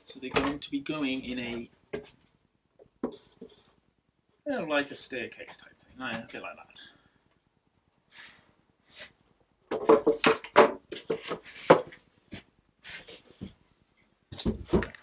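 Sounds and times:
wooden pieces knocking and clattering: 9.6s - 12.0s.

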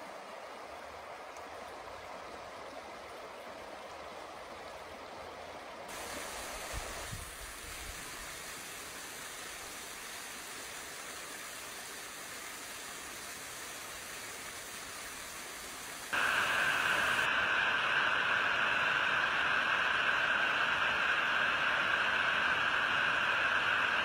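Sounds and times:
creek running over rocks: 0.0s - 17.3s
waterfall pouring into a pool: 5.8s - 19.8s.

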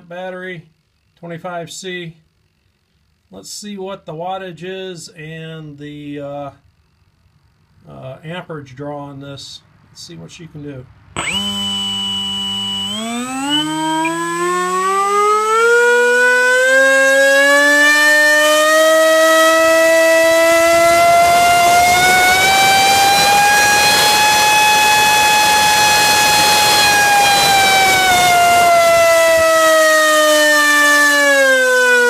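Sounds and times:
electric motor whine: 11.2s - 32.0s.

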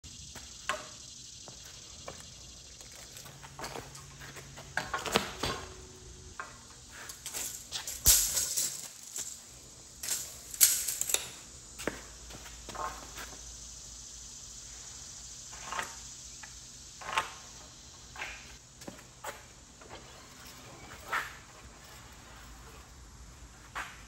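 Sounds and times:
tools clicking and scraping on wood: 6.4s - 12.0s
metal tools rattling: 7.0s - 11.4s.

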